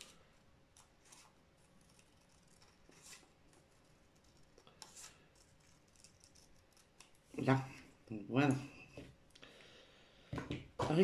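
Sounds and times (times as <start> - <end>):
scissors cutting paper: 4.1 - 7.2.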